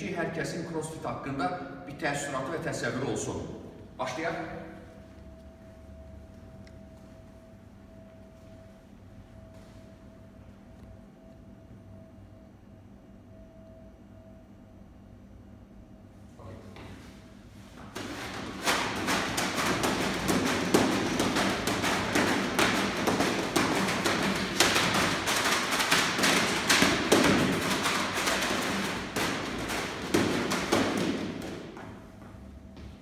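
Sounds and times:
battle ropes slapping floor mats: 17.8s - 33.0s.

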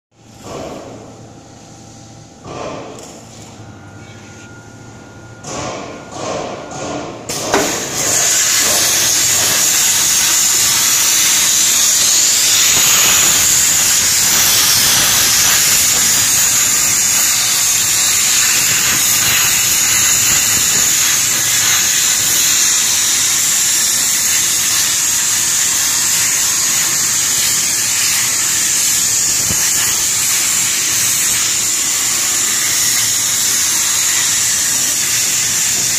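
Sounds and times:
plasma torch hissing: 7.3s - 35.9s.

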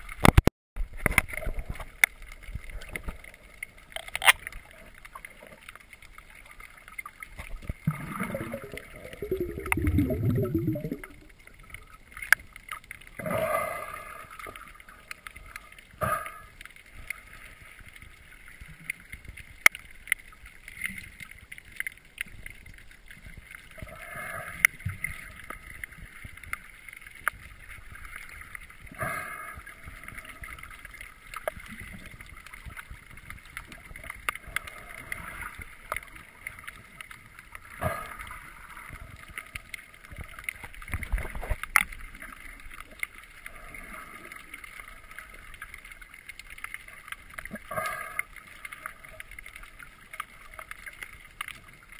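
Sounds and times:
sharp underwater clicks: 0.0s - 13.4s, 29.6s - 51.9s
underwater rushing bursts: 7.5s - 11.7s.

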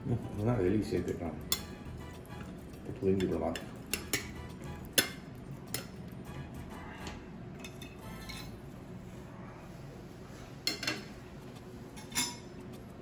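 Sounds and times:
cutlery clinking on ceramic plates: 10.7s - 11.1s, 12.0s - 12.5s.

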